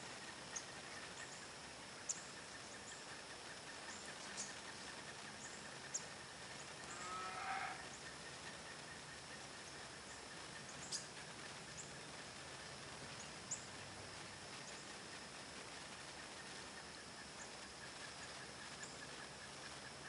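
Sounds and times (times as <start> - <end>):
high insect drone: 0.0 - 20.0
brief animal call: 6.9 - 7.9.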